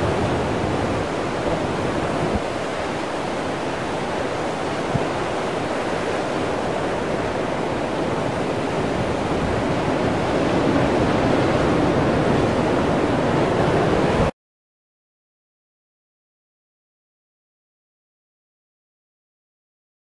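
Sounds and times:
ocean surf breaking on rocks: 0.0 - 14.3.

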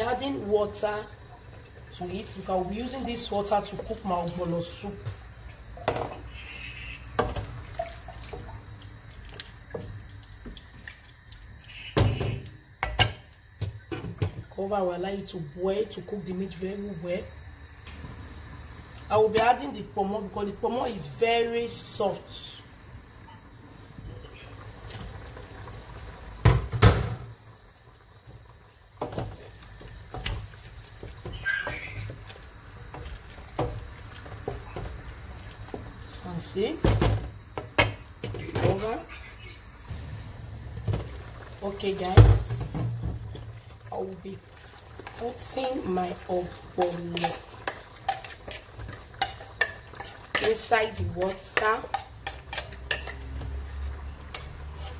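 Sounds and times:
water sloshing: 7.4 - 11.8
wooden spoon stirring in pot: 28.2 - 36.8, 40.8 - 54.9
wooden spoon tapping a pot: 46.8 - 48.6.

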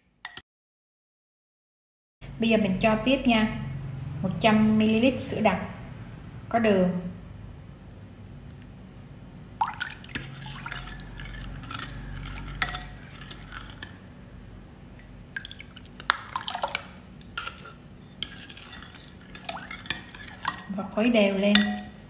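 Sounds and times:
liquid dripping: 9.6 - 11.5, 15.0 - 17.8
spoon scraping a cup: 10.1 - 14.0, 16.6 - 20.8
spoon clinking against bowl: 16.0 - 20.7, 21.5 - 22.0.

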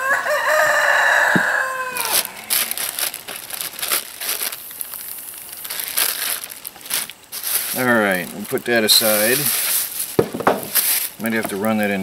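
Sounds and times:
rooster crowing: 0.0 - 3.1
plastic bag crinkling: 2.0 - 12.0.

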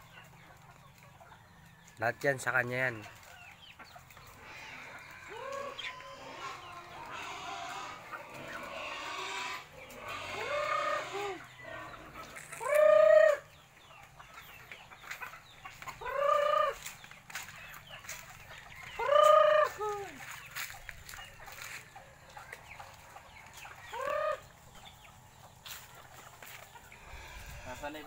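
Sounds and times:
chickens calling: 0.0 - 28.0.

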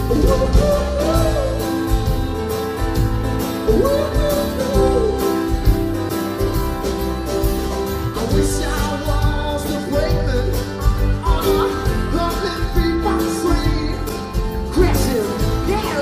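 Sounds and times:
man singing: 0.0 - 2.5, 3.5 - 6.0, 8.1 - 16.0
drums: 0.0 - 16.0
electric bass: 0.0 - 16.0
guitars: 0.0 - 16.0
keyboards: 0.0 - 16.0.

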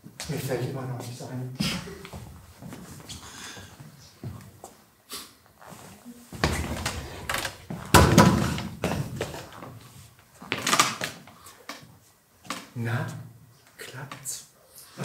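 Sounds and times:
chair scraping and bumping on floor: 5.7 - 11.2.

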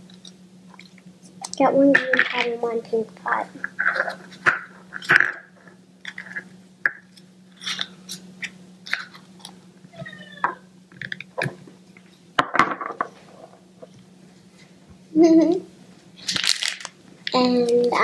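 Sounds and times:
plastic crinkling: 16.2 - 17.9.

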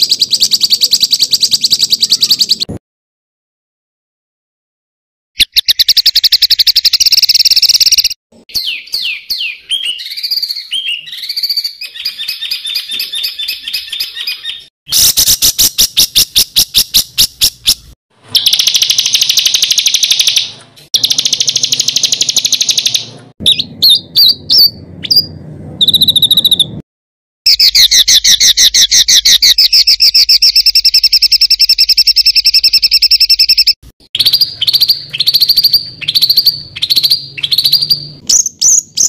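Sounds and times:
songbird trilling and whistling: 0.0 - 2.7, 5.4 - 26.8, 27.5 - 39.0.

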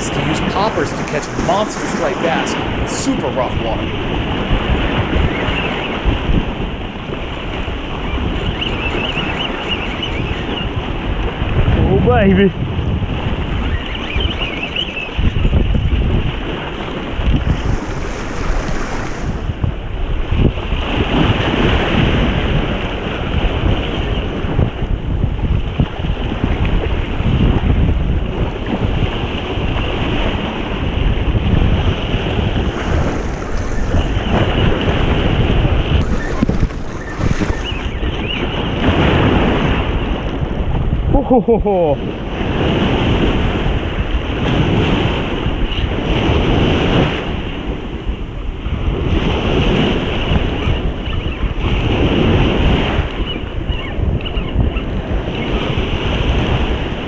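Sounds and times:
breaking surf: 0.0 - 13.6, 15.2 - 25.0, 28.4 - 41.0
wind buffeting microphone: 0.0 - 57.0.

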